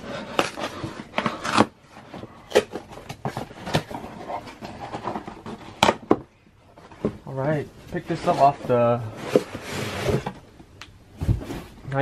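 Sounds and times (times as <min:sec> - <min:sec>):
cardboard box scraping and rustling: 0:08.0 - 0:10.4.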